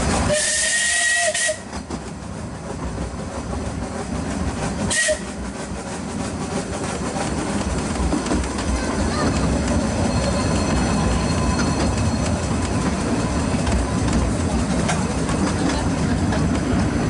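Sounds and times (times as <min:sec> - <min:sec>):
train running on track: 0:00.0 - 0:17.0
steam locomotive whistle: 0:00.2 - 0:01.8, 0:04.9 - 0:05.4.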